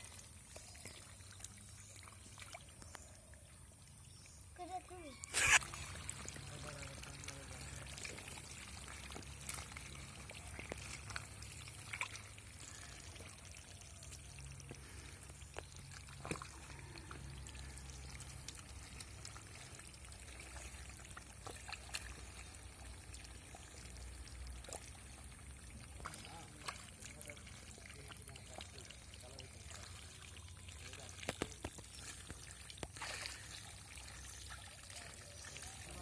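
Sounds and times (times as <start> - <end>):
muddy water splashing: 4.1 - 36.0
hands squelching through mud: 5.2 - 6.2.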